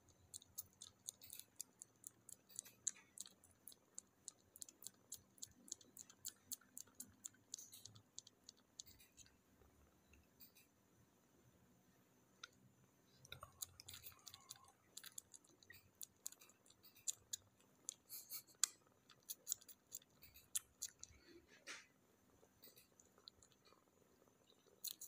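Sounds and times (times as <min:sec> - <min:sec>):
kitten suckling clicks and smacks: 0:00.0 - 0:09.3, 0:13.2 - 0:21.2, 0:22.6 - 0:23.7, 0:24.6 - 0:25.0.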